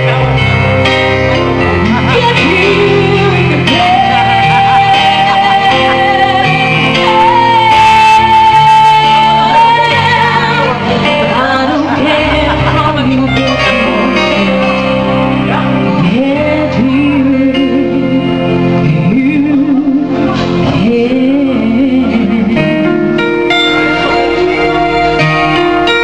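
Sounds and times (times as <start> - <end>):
electronic keyboard: 0.0 - 26.0
woman singing: 1.9 - 26.0.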